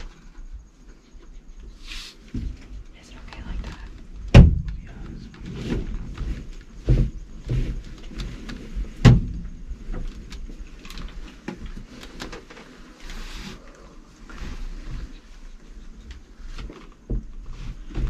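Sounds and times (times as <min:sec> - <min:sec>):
sharp thump: 0:04.3 - 0:04.8
people and gear shuffling: 0:04.7 - 0:09.0, 0:09.6 - 0:18.0.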